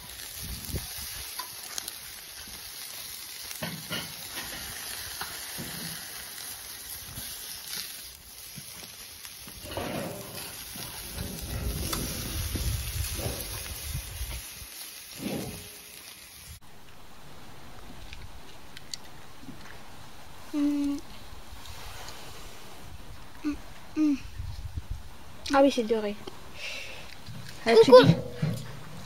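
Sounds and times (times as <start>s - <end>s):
meat sizzling on a grill: 0.0s - 16.6s.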